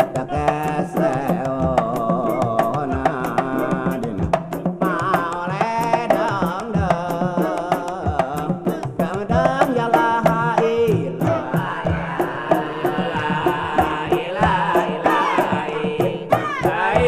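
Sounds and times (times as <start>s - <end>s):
person singing ornamented melody: 0.0s - 8.8s
frame drums beating: 0.0s - 17.0s.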